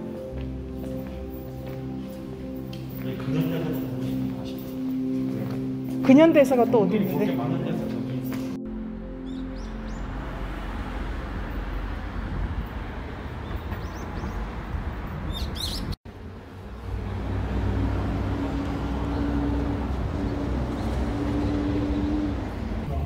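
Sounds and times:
traffic noise: 0.0s - 23.0s
vehicle engine humming: 0.0s - 23.0s
small birds chirping: 13.3s - 16.0s.

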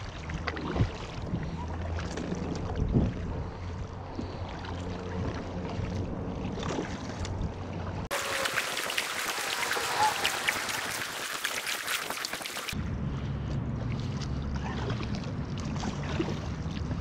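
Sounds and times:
kayak paddle strokes splashing: 0.0s - 12.8s
small splashes and drips: 0.0s - 12.8s.

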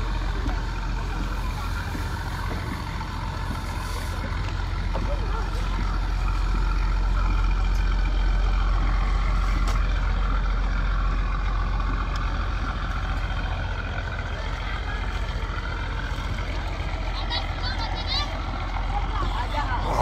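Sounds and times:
large engine humming: 0.0s - 20.0s.

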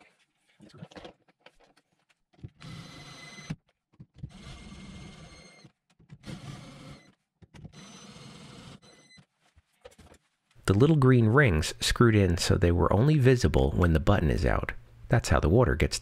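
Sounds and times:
cordless drill whining: 2.6s - 3.6s, 4.2s - 9.1s.

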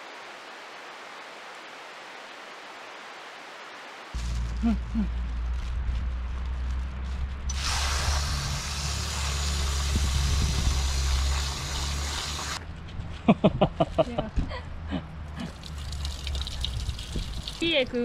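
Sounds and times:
water running into plastic bag: 7.5s - 12.6s, 15.4s - 18.0s.

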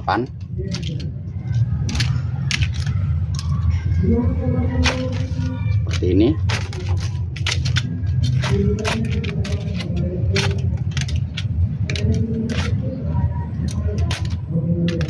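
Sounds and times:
steady low rumble: 0.0s - 15.0s
hand shears snipping leaves: 4.8s - 12.8s.

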